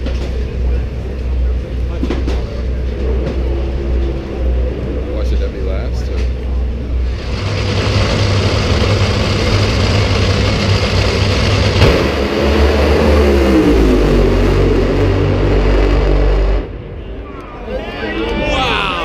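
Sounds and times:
dragster engines roaring: 0.0s - 19.0s
sharp crack: 7.2s - 13.2s.

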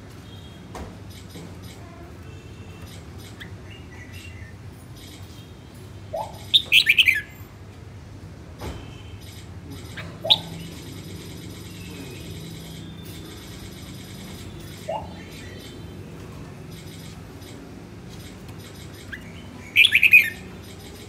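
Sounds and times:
bulbul chirping: 6.1s - 7.3s, 9.2s - 16.0s, 16.6s - 21.0s.

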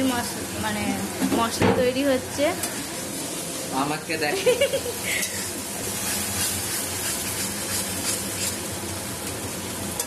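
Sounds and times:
masala sizzling in a pan: 0.0s - 10.0s
metal spatula scraping: 5.8s - 8.6s.

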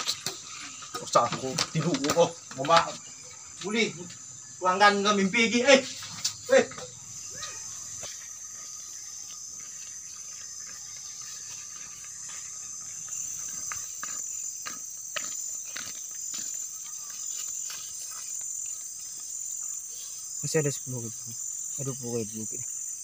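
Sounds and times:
high-pitched insect chorus: 0.0s - 23.0s
footsteps on asphalt: 7.9s - 19.4s.

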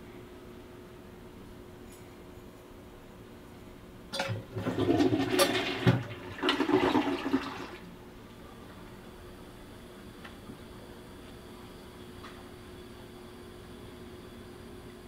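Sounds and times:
toilet flushing: 4.1s - 7.9s.

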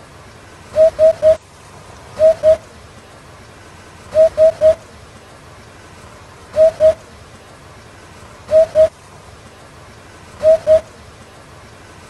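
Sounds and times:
bird hooting song: 0.7s - 1.4s, 2.2s - 2.7s, 4.1s - 4.8s, 6.5s - 7.0s, 8.5s - 8.9s, 10.4s - 11.0s.

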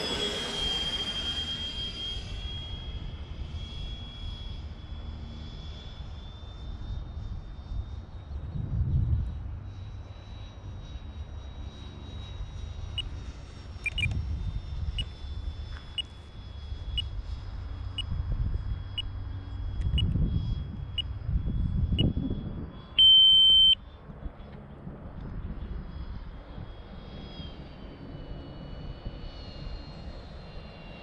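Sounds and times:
electric ducted fan whine: 0.0s - 31.0s
wind rumble on microphone: 6.1s - 23.0s, 23.9s - 31.0s
electronic timer beeps: 13.8s - 14.2s, 23.0s - 23.8s.

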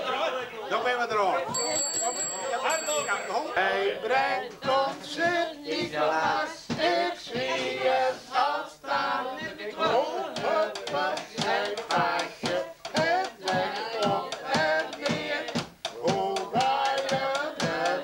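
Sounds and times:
group of people singing: 1.2s - 18.0s
hand clapping: 10.3s - 18.0s.

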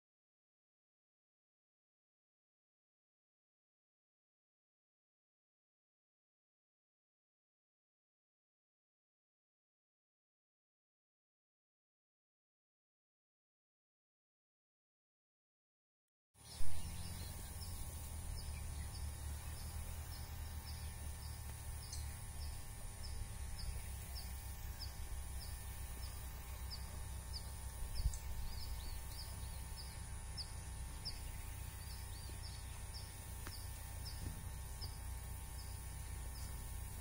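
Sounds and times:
wind rumbling on microphone: 16.5s - 37.0s.

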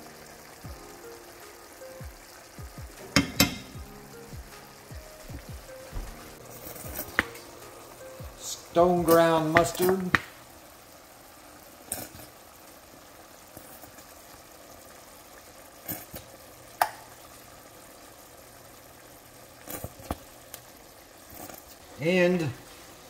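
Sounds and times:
pan simmering with quiet sizzle: 0.0s - 23.0s
metal spoon clicking on pan: 3.2s - 3.8s.

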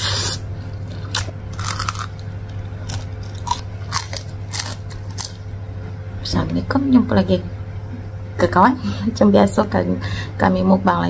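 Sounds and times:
crunchy food chewing: 0.0s - 5.5s.

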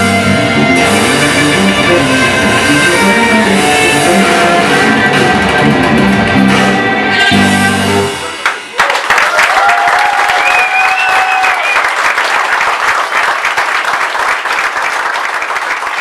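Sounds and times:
band final chord: 0.0s - 8.5s
audience applauding: 8.4s - 16.0s
person cheering: 8.8s - 11.9s.

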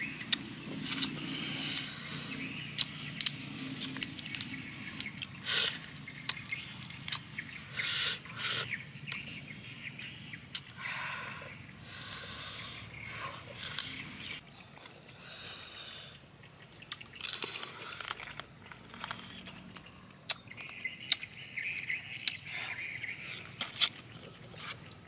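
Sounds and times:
wet chewing: 0.0s - 7.5s, 16.7s - 25.0s.

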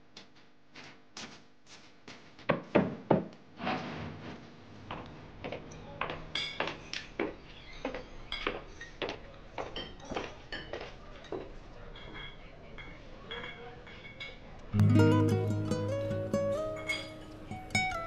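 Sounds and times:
room hum: 0.0s - 9.4s, 14.7s - 18.0s
cups and saucers clinking: 16.5s - 18.0s.

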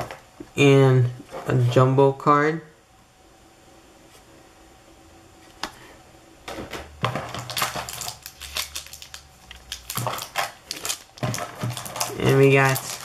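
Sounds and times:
card packaging crinkling and clicking: 7.0s - 13.0s.

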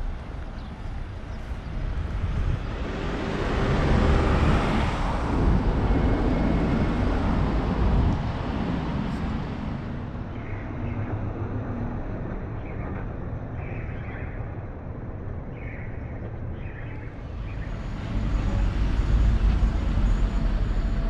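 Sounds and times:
town street background: 0.0s - 21.0s
motor vehicle passing: 1.8s - 10.2s.

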